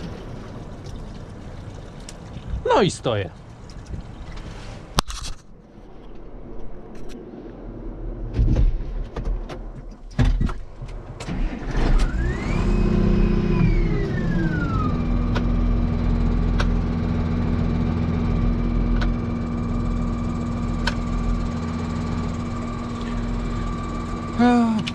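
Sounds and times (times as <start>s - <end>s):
tractor engine revving: 11.2s - 24.9s
clicks and knocks from controls: 16.5s - 16.8s.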